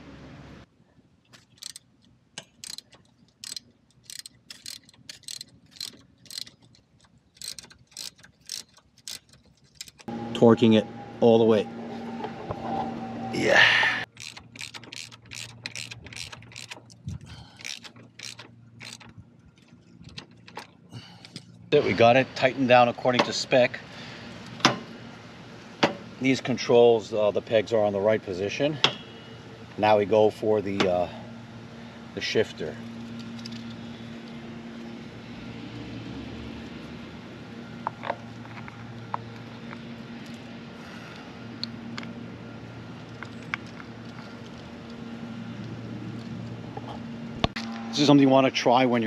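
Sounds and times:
low background hum: 0.0 - 49.0
ratcheting torque wrench clicking: 1.4 - 1.8, 2.4 - 10.1, 14.1 - 19.2.

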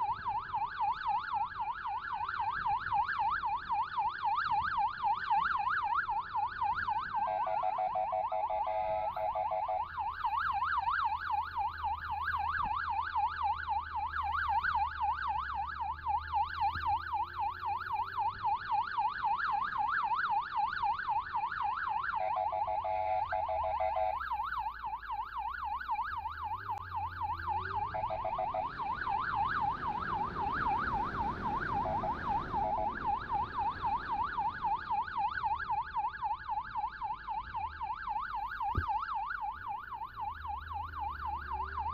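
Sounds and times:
siren yelping: 0.0 - 41.9
blaring horn: 7.1 - 9.8, 22.2 - 24.2, 27.8 - 28.7.

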